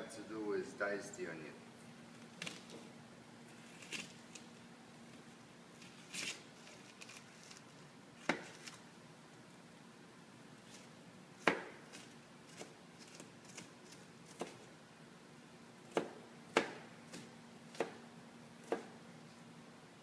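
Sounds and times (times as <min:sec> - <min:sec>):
onion rustling: 0:02.1 - 0:08.9, 0:11.7 - 0:14.7
knife chopping on plastic board: 0:08.2 - 0:08.6, 0:11.4 - 0:13.7, 0:14.3 - 0:14.6, 0:15.9 - 0:18.0, 0:18.6 - 0:19.0.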